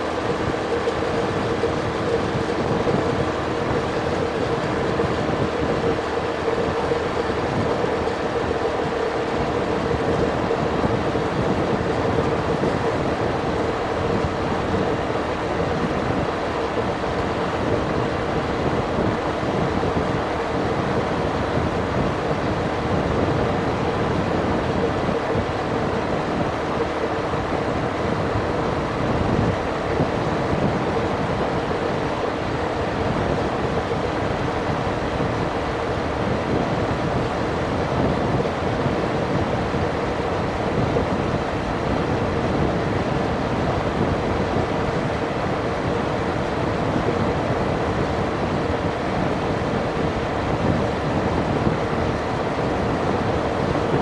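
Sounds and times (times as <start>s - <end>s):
scooter engine humming: 0.0s - 48.0s
wind and road noise: 0.0s - 54.0s.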